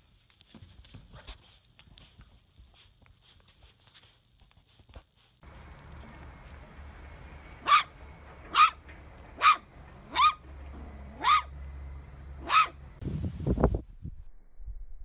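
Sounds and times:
puppy yipping: 7.6 - 8.8, 9.4 - 10.5, 11.1 - 11.5, 12.4 - 12.8.

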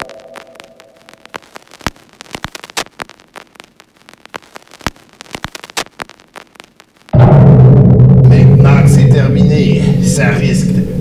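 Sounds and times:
low hiss: 0.0 - 7.2
crackling static clicks and pops: 0.0 - 11.0.

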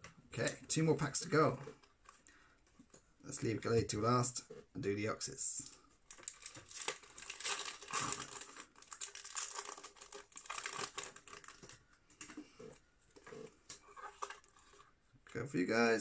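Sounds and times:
foil wrapper crinkling and tearing: 6.0 - 11.8.

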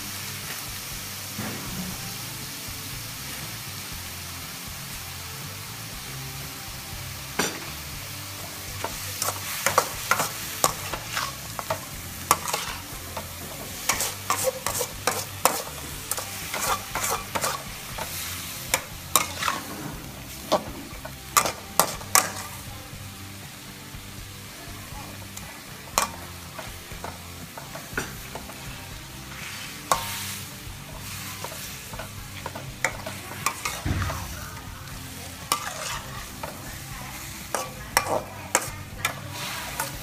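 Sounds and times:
food sizzling: 0.0 - 40.0
metal spatula scraping a wok: 7.3 - 22.7, 25.4 - 40.0.

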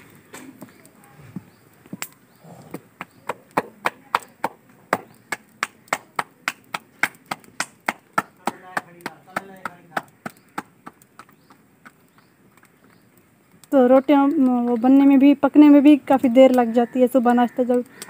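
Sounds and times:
dough slapped between palms: 3.1 - 11.2.

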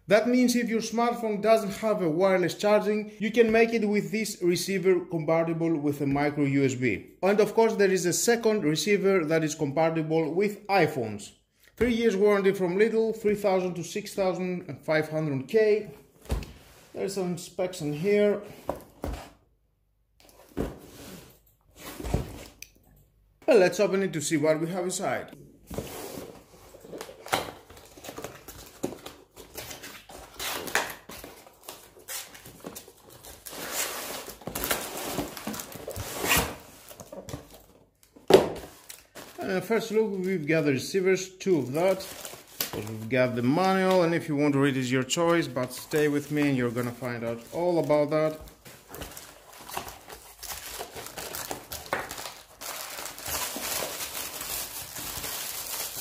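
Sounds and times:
plastic wrap and cardboard crinkling: 25.9 - 40.6, 41.5 - 56.0.

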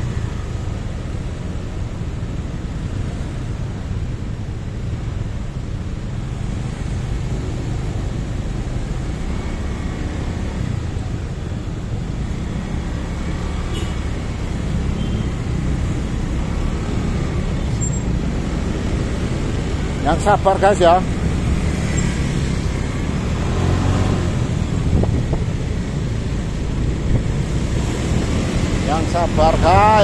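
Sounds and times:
motorcycle engine rumble: 0.0 - 30.0
traffic jam: 0.0 - 30.0.

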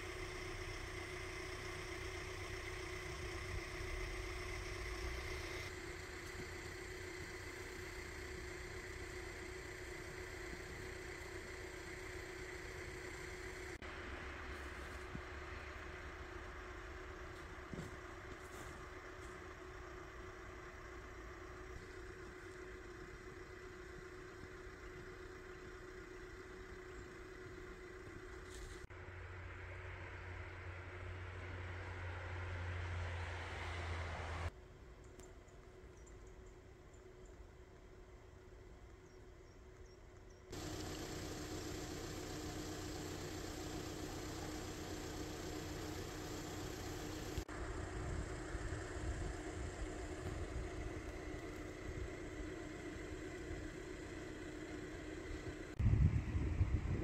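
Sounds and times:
engine idling hum: 0.0 - 57.0.

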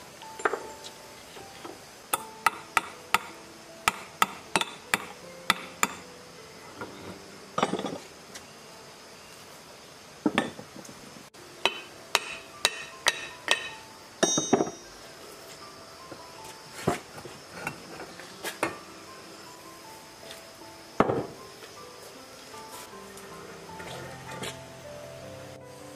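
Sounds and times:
metal clinks and knocks: 0.4 - 0.9, 6.8 - 8.1, 11.7 - 14.9.

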